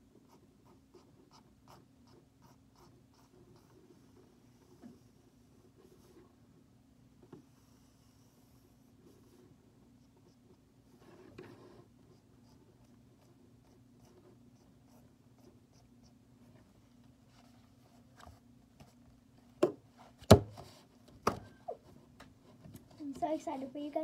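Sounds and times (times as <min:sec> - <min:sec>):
pencil scratching on paper: 0:00.3 - 0:06.3, 0:07.6 - 0:16.2.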